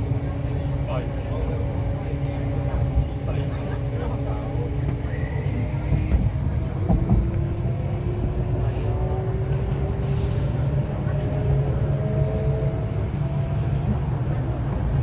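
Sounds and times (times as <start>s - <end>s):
traction motors whining: 0.0s - 15.0s
train running rumble: 0.0s - 15.0s.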